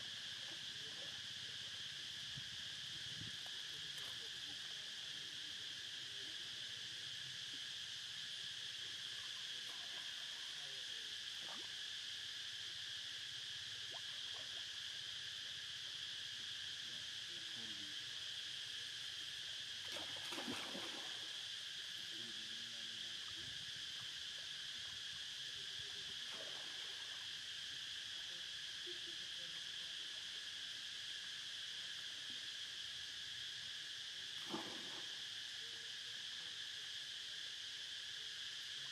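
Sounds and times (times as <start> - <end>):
insects droning: 0.0 - 38.9.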